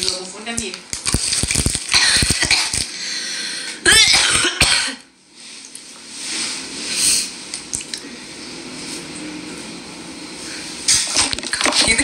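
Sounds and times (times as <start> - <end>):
person coughing: 1.9 - 2.8, 3.8 - 5.1.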